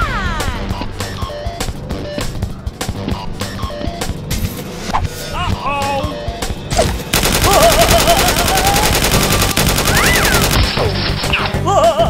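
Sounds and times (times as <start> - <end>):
background music: 0.0 - 12.0
rapid automatic gunfire: 7.1 - 11.1.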